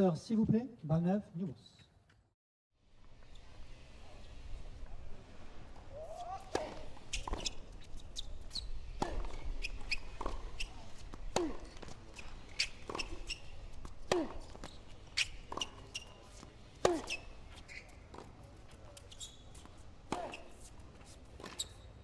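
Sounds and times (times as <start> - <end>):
tennis ball bounces: 6.1 - 7.8, 8.4 - 20.8
tennis racket strikes: 11.3 - 17.3, 19.6 - 20.7.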